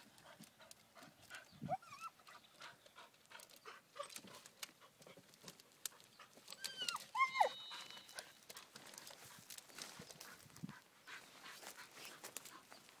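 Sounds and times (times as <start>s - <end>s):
dog whining: 1.6s - 2.2s, 6.5s - 8.4s
dry branches crackling: 3.1s - 13.0s.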